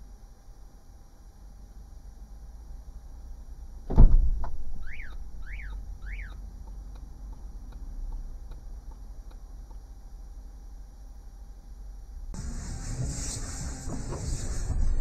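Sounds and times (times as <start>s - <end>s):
electronic chirps: 4.8s - 6.4s.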